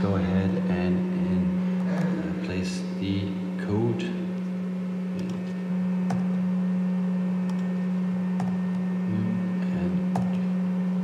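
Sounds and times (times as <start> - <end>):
steady low hum: 0.0 - 11.0
laptop keystrokes: 7.4 - 7.7, 8.4 - 8.6.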